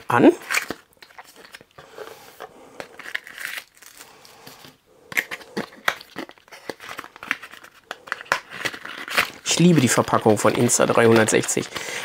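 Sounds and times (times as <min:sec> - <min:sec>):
plastic bag crinkling: 0:00.0 - 0:02.2, 0:05.2 - 0:12.0
cardboard packaging rustling: 0:00.0 - 0:12.0.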